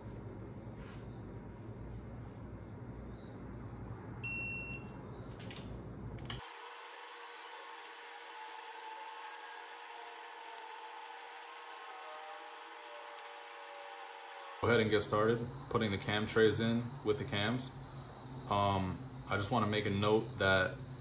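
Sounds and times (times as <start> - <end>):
torque wrench beep: 4.2 - 4.9.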